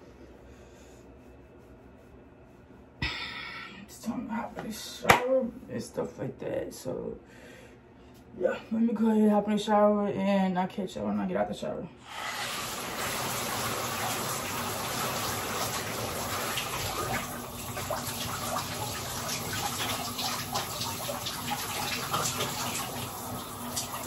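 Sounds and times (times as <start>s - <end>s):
shower water spraying: 12.1s - 24.0s.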